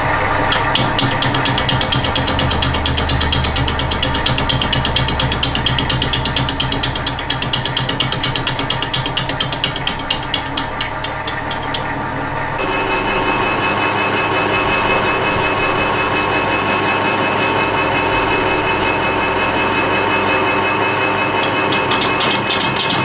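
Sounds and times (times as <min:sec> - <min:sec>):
lathe humming: 0:00.0 - 0:16.8, 0:17.4 - 0:23.0
boring bar ticking: 0:00.5 - 0:11.9.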